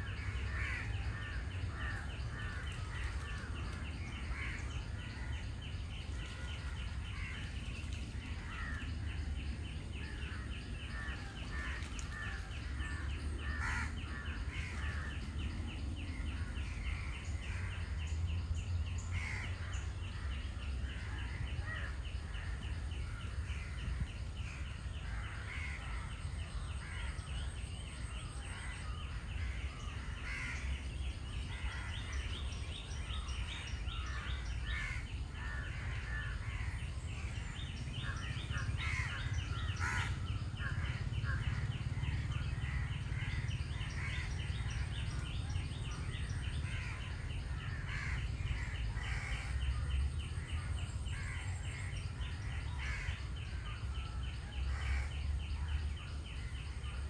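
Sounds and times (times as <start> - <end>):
birds chirping: 0.0 - 57.0
crows cawing: 0.5 - 3.4, 10.3 - 15.2, 19.2 - 19.7, 29.4 - 30.8, 34.0 - 36.8, 38.0 - 44.8, 46.7 - 49.6, 52.7 - 53.6.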